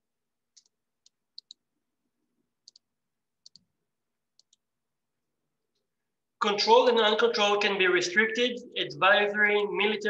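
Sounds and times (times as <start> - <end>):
computer mouse clicks: 0.5 - 1.6, 2.6 - 3.7, 4.3 - 4.7.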